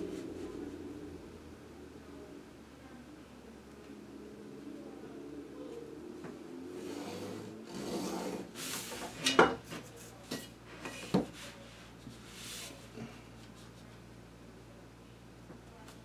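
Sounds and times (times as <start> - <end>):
ruler scraping on paper: 6.8 - 9.2.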